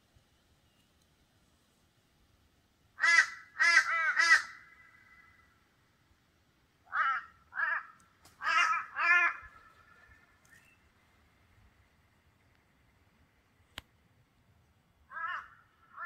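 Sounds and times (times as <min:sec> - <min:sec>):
crow cawing: 0:03.0 - 0:05.6, 0:06.8 - 0:10.4, 0:15.1 - 0:16.0.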